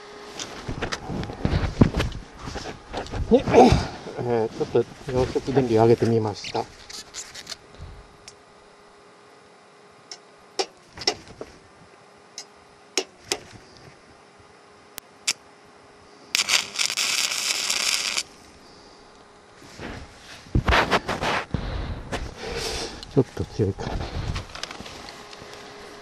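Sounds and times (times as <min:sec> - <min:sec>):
welding arc crackling hiss: 0:15.2 - 0:15.4, 0:16.3 - 0:18.6.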